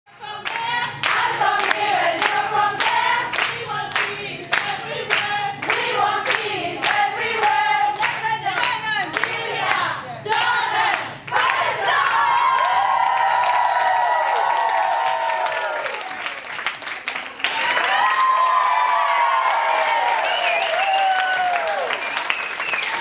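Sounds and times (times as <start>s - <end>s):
women singing in chorus: 0.1s - 12.5s
rhythmic hand clapping: 0.4s - 23.0s.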